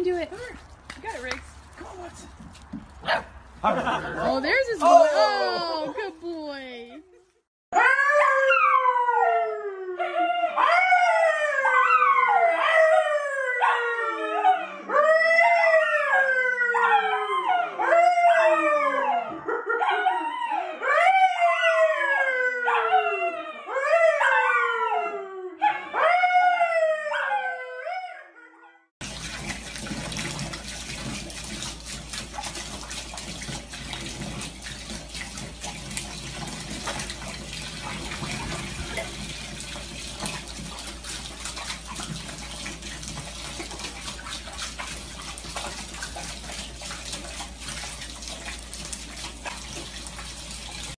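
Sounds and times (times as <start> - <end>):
dogs howling: 7.8 - 28.6.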